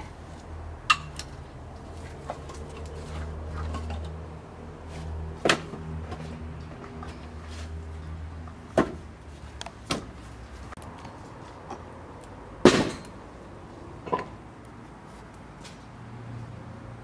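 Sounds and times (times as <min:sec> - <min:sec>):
firewood logs knocking together: 0:05.4 - 0:07.2, 0:08.7 - 0:09.1, 0:09.8 - 0:10.2.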